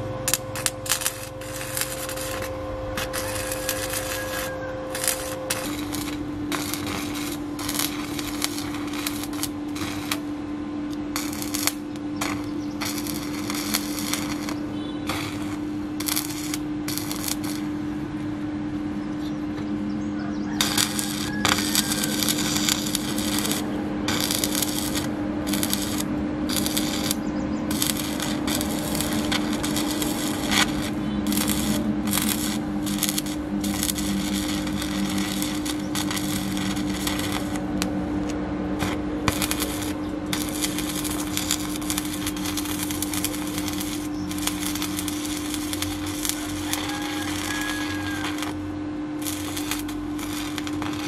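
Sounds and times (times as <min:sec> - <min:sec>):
welding arc crackling: 0:00.0 - 0:18.0, 0:20.5 - 0:51.0
steady low hum: 0:00.0 - 0:51.0.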